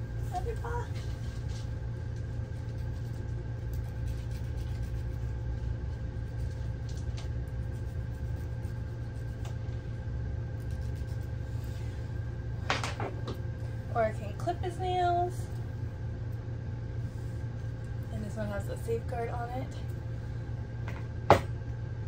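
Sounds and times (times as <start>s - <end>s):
low mechanical hum: 0.0s - 22.0s
nail file scratching dog claws: 2.7s - 5.3s, 10.6s - 11.3s.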